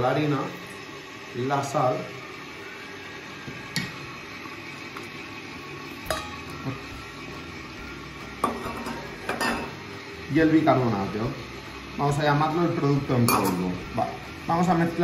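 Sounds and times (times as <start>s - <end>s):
electric mixer running: 0.0s - 15.0s
utensils clinking on metal bowl: 6.1s - 6.5s, 8.4s - 9.8s, 13.2s - 13.7s.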